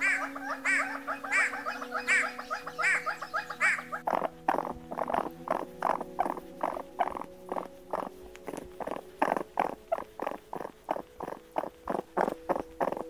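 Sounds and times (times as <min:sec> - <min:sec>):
raccoon purring calls: 0:00.0 - 0:13.0.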